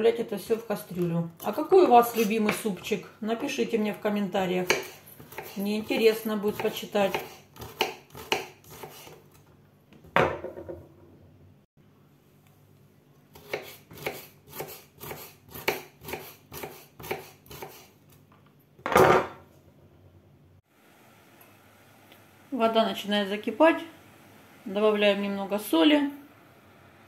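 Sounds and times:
knife chopping on cutting board: 0:04.6 - 0:09.2, 0:13.4 - 0:17.9.

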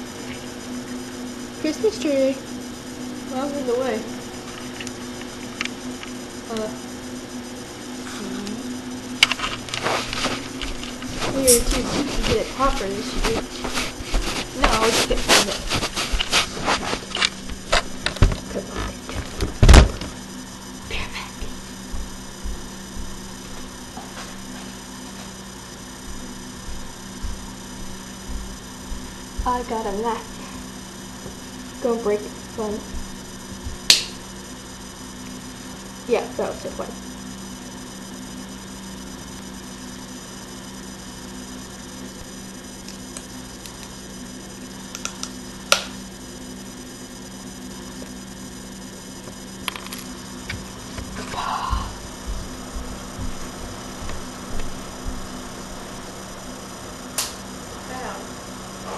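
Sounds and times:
electrical mains hum: 0:00.0 - 0:58.9
dull low thumps: 0:21.4 - 0:23.4, 0:26.0 - 0:30.0, 0:32.9 - 0:33.9, 0:51.8 - 0:54.2.

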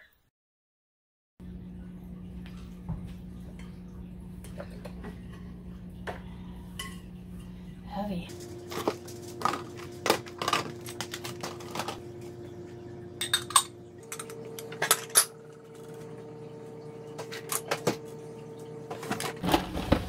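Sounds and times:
steady hum: 0:01.4 - 0:20.0
containers and glassware clinking: 0:08.3 - 0:12.0, 0:13.1 - 0:16.2.

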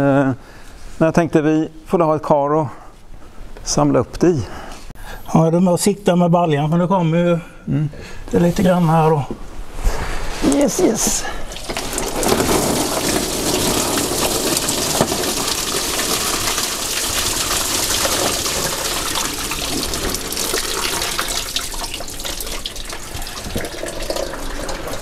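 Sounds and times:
coolant pouring into a tub: 0:11.4 - 0:25.0.

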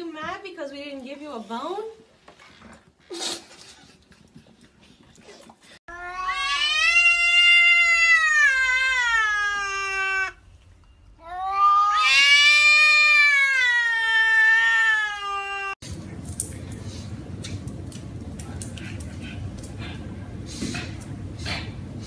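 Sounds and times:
cat yowling: 0:05.9 - 0:10.4, 0:11.2 - 0:15.8.

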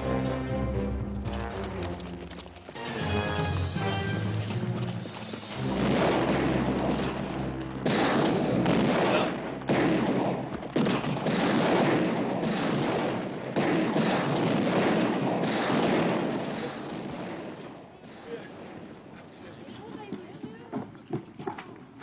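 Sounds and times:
echoing gunshots: 0:04.6 - 0:19.4.

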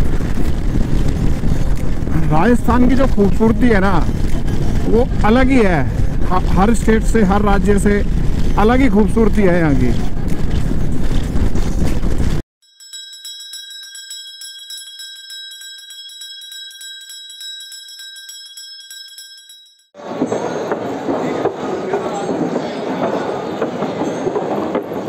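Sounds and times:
motorcycle ride noise: 0:00.0 - 0:12.4
brass bells ringing: 0:12.6 - 0:20.1
crowded echoing hall noise: 0:20.0 - 0:25.0.

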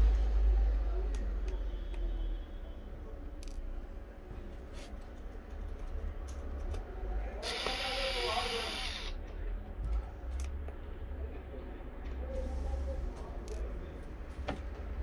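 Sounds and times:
small electric screwdriver: 0:07.4 - 0:09.2.

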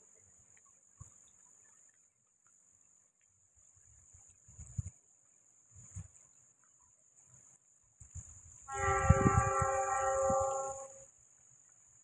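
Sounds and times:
train horn: 0:08.7 - 0:11.1.

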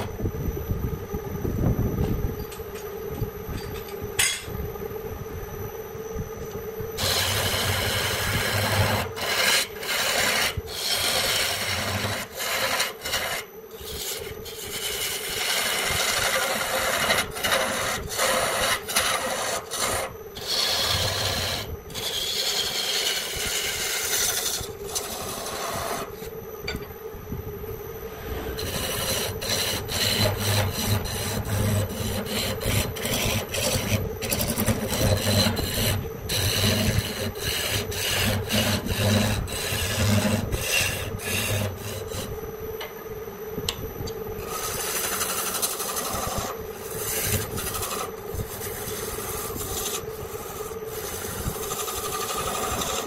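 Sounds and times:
steady hum: 0:00.0 - 0:53.0
abrasive tool rubbing wood: 0:07.0 - 0:26.3, 0:28.1 - 0:42.3, 0:44.4 - 0:53.0.

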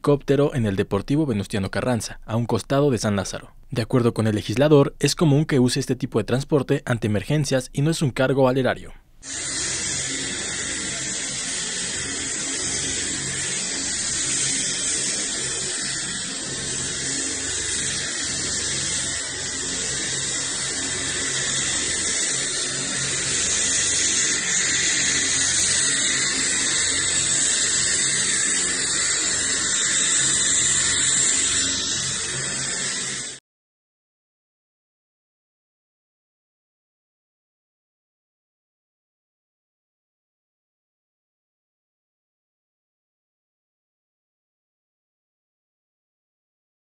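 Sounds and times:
helicopter turbine engine whine: 0:09.2 - 0:33.4.

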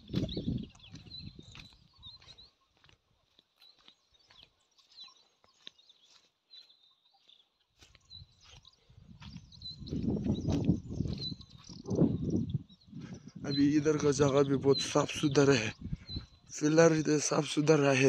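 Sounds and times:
high bird chirps: 0:00.0 - 0:02.8, 0:03.7 - 0:17.9.

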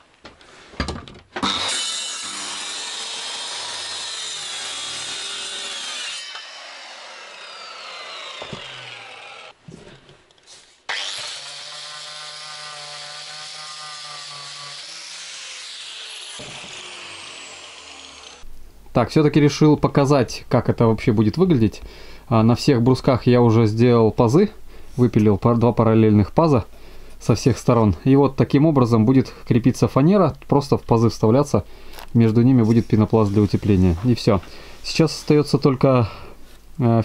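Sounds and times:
circular saw cutting plywood: 0:01.4 - 0:09.6, 0:10.9 - 0:18.5.

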